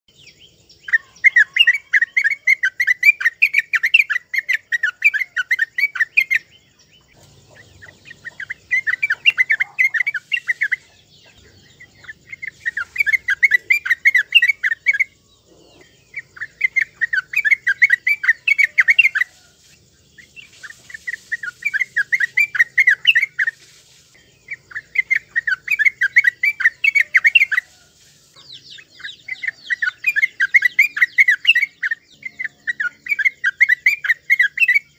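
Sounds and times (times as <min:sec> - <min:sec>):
bird singing chattering notes: 0:00.1 - 0:34.9.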